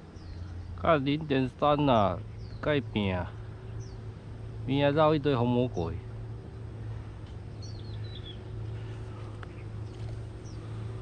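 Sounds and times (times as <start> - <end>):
bird chirps: 0.0 - 4.1, 7.5 - 10.8
low background hum: 0.0 - 11.0.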